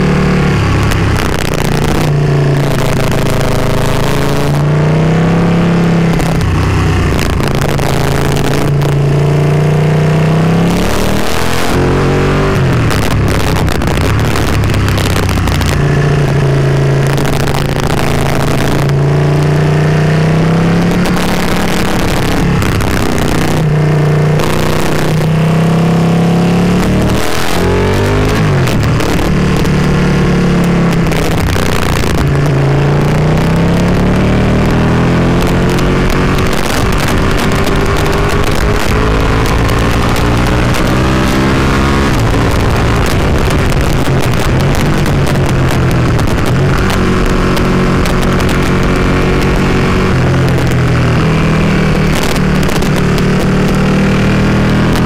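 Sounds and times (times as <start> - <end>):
motorcycle engine revving: 0.0 - 55.0
wind rush: 10.4 - 55.0.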